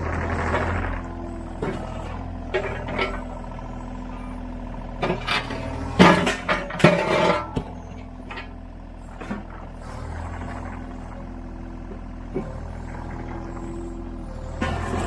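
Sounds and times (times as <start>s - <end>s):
clunks and grinding concrete: 0.0s - 15.0s
excavator running: 0.0s - 15.0s
bucket scraping broken concrete: 5.1s - 7.8s.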